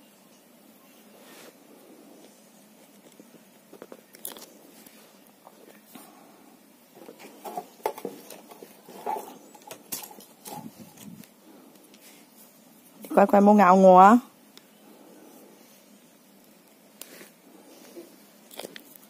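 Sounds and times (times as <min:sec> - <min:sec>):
turtle shell clicking and scraping: 0:02.8 - 0:06.1, 0:06.9 - 0:12.1, 0:16.4 - 0:19.0.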